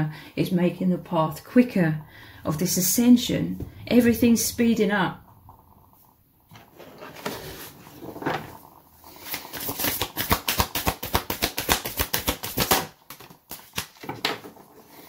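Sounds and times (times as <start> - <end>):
cards shuffled by hand: 9.2 - 14.2.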